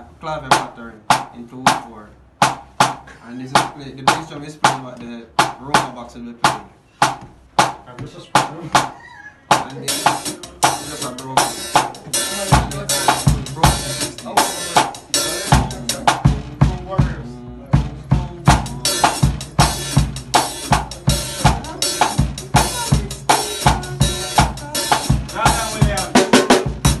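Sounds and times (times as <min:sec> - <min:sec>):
rim strikes: 0:00.5 - 0:08.9
snare drum: 0:00.5 - 0:08.9, 0:09.5 - 0:17.2, 0:17.8 - 0:27.0
kick drum: 0:07.0 - 0:08.9, 0:15.6 - 0:20.2.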